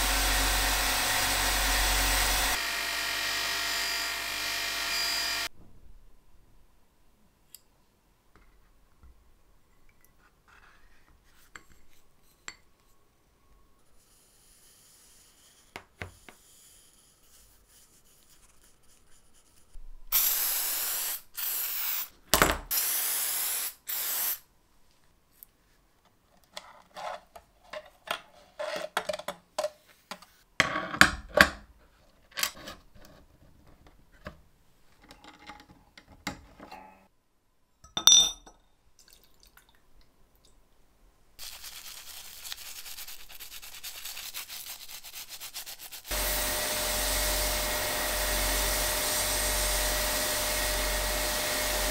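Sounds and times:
spray hissing bursts: 0:20.1 - 0:22.1, 0:22.7 - 0:24.4, 0:46.1 - 0:51.9
metal clink ringing: 0:37.8 - 0:38.6
toothbrush scrubbing metal in liquid: 0:41.4 - 0:50.8.

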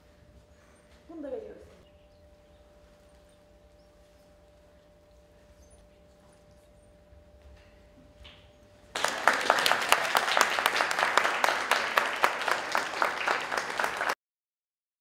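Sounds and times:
steady hum: 0:00.0 - 0:14.0
audience applauding: 0:08.9 - 0:14.2.

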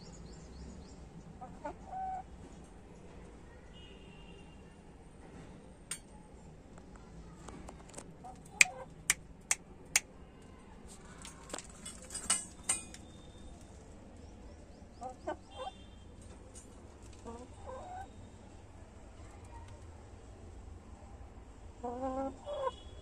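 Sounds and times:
metal clinks from wire cage: 0:11.3 - 0:13.1.

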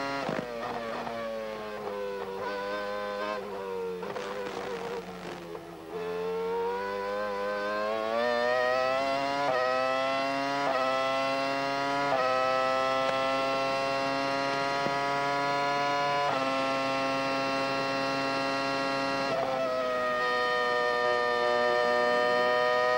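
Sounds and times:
gear upshifts: 0:00.2 - 0:06.2
race car engine wailing: 0:00.2 - 0:07.0.

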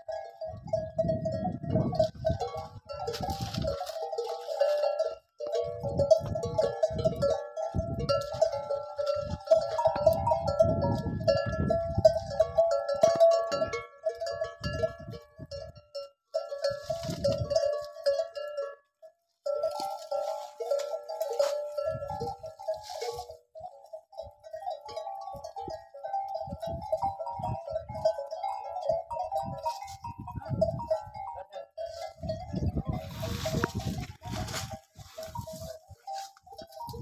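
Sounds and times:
wind rumbling on microphone: 0:00.0 - 0:04.0, 0:05.6 - 0:15.8, 0:16.6 - 0:17.7, 0:21.4 - 0:22.9, 0:25.4 - 0:28.2, 0:29.1 - 0:37.0
metal bells ringing: 0:00.0 - 0:18.8, 0:19.4 - 0:37.0.

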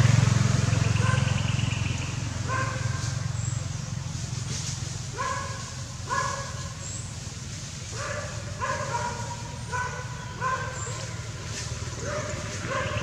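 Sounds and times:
low motor hum: 0:00.0 - 0:05.8.

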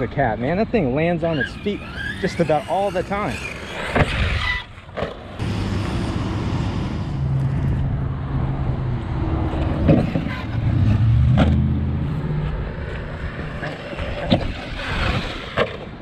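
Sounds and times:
electric rc truck motor drone: 0:00.5 - 0:04.8, 0:05.4 - 0:07.8, 0:12.1 - 0:16.0.

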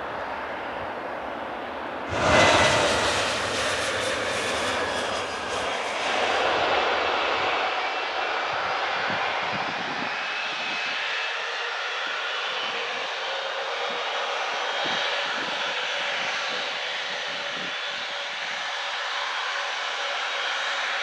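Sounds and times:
faint high engine whine: 0:00.0 - 0:21.0
jet engines rushing hum: 0:00.1 - 0:19.6.

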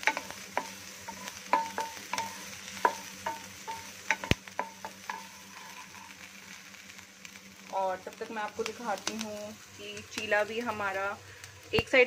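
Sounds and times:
wooden spatula scraping pan: 0:00.0 - 0:06.2
faint sizzle: 0:00.0 - 0:12.0.

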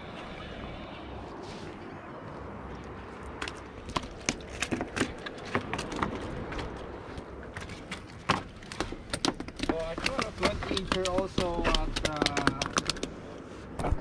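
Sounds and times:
fish flopping on wooden planks: 0:03.2 - 0:13.2.

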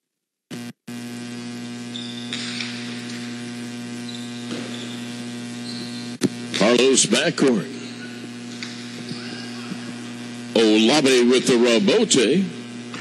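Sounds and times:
electrical mains hum: 0:00.5 - 0:13.0.

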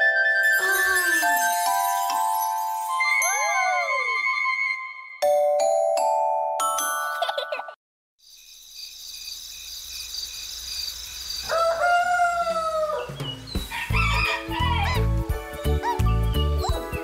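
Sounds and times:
bright children's music: 0:00.0 - 0:07.8, 0:13.6 - 0:17.0
rooster crowing: 0:11.4 - 0:15.1.

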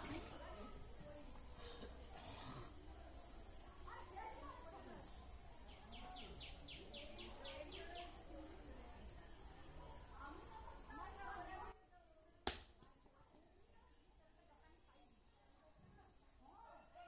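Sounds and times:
insect chorus drone: 0:00.0 - 0:12.1.

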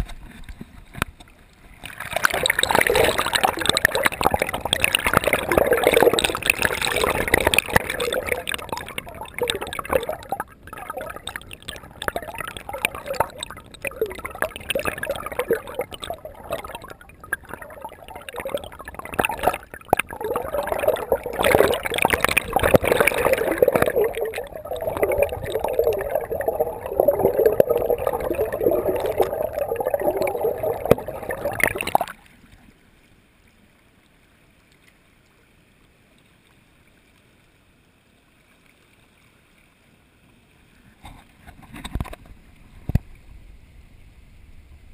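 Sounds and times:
river water sloshing and gurgling: 0:01.6 - 0:32.4.

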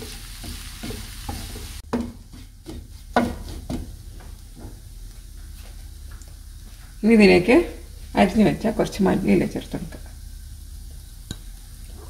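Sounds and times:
spatula scraping a frying pan: 0:00.0 - 0:03.9
light sizzle: 0:00.0 - 0:12.0.

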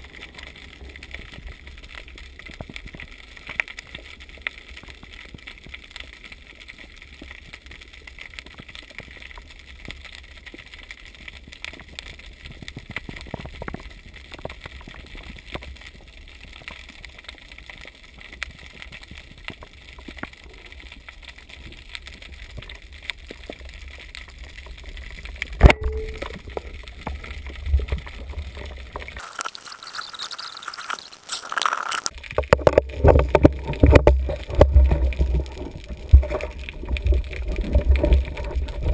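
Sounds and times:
low underwater rumble: 0:32.4 - 0:38.9.

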